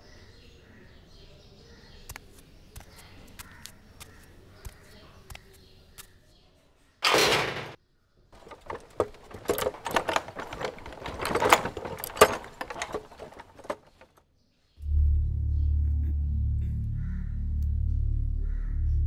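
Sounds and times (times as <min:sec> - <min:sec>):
lock clicking and rattling: 0:07.0 - 0:07.8, 0:08.4 - 0:14.2.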